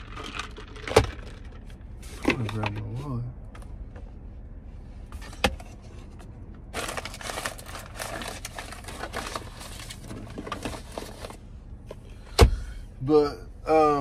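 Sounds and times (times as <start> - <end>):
plastic or paper crinkling: 6.7 - 11.4.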